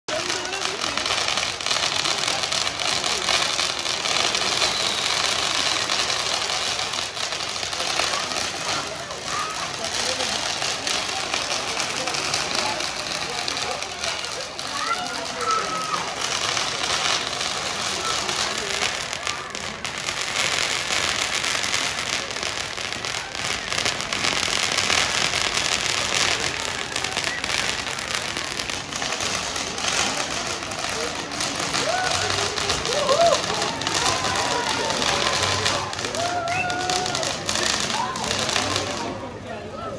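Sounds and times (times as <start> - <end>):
firework fountain crackling hiss: 0.1 - 39.9.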